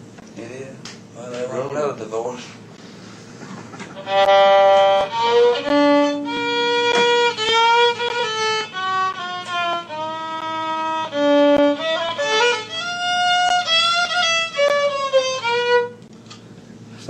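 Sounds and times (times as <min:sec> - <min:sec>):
solo violin melody: 0:04.0 - 0:16.0.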